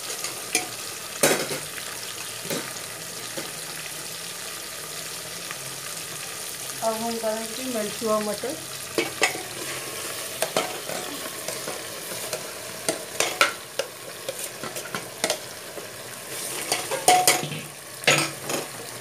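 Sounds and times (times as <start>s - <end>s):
food sizzling: 0.0s - 19.0s
spoon scraping metal pan: 9.0s - 15.6s, 16.3s - 17.5s.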